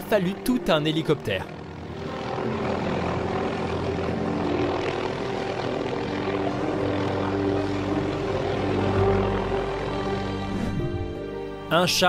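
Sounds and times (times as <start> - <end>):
helicopter hovering: 0.0 - 12.0.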